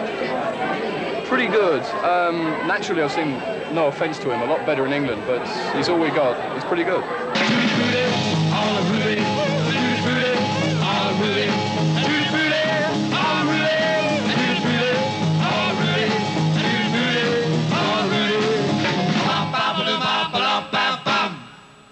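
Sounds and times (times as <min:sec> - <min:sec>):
driving bass line: 0:07.4 - 0:19.6
rock and roll band playing: 0:07.4 - 0:21.5
lead vocal singing: 0:07.4 - 0:21.7.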